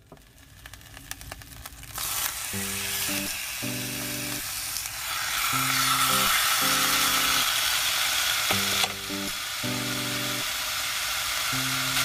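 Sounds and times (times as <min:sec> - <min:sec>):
faint crackles: 0:00.0 - 0:05.0
meat sizzling in a skillet: 0:00.5 - 0:12.0.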